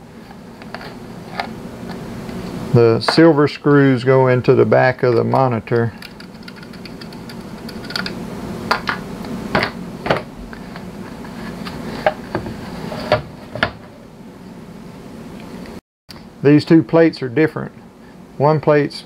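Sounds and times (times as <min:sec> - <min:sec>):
low room hum: 0:00.0 - 0:19.0.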